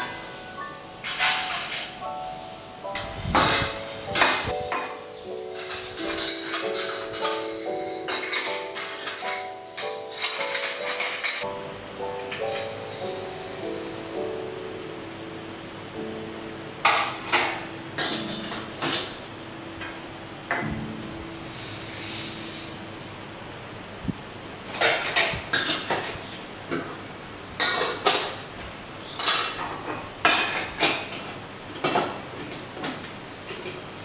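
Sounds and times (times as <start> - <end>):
steel cups and lids clinking: 4.2 - 11.5, 27.6 - 28.4, 29.2 - 32.2.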